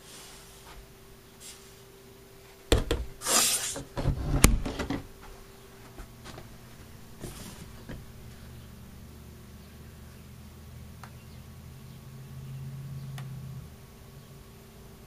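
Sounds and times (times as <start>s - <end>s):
swishing rub: 0.0s - 1.9s, 7.1s - 7.9s.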